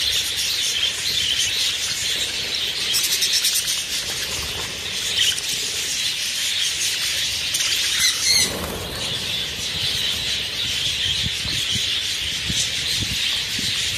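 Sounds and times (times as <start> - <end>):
budgerigars chattering: 0.0 - 13.9
wing beats: 0.0 - 13.9.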